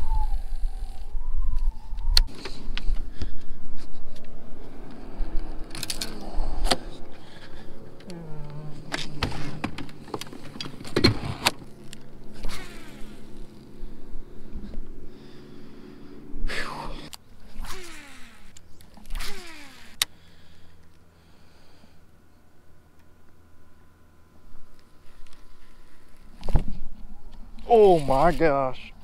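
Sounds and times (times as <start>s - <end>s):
electric trolling motor whining: 0.0s - 3.4s, 4.0s - 20.7s
wind rumble on microphone: 0.0s - 10.0s.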